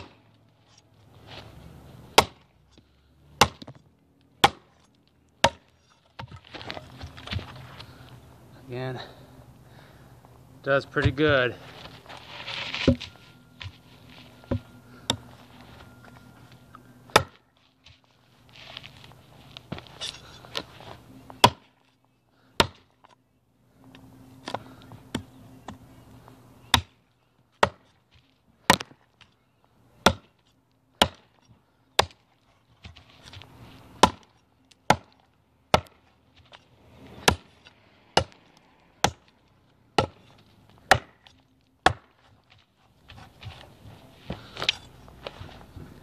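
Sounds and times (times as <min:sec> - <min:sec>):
chopper hacking into a log: 0:34.0 - 0:34.3.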